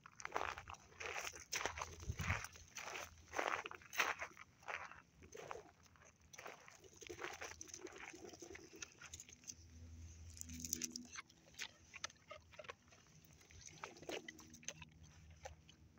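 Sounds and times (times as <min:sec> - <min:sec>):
dog and walker on asphalt: 0:00.0 - 0:15.9
low hum: 0:08.7 - 0:15.9.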